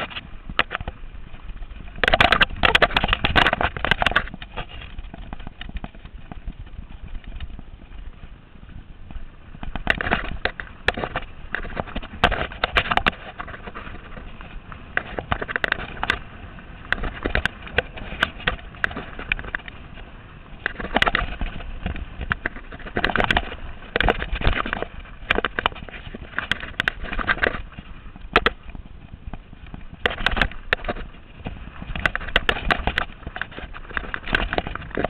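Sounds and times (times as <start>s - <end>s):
bike knocks and rattles: 0.0s - 35.0s
steady rushing noise: 0.0s - 35.0s.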